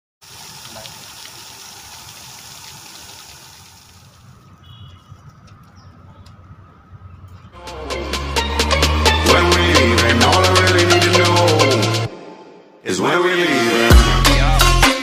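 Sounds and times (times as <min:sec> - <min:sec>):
water trickling over stones: 0:00.2 - 0:06.4.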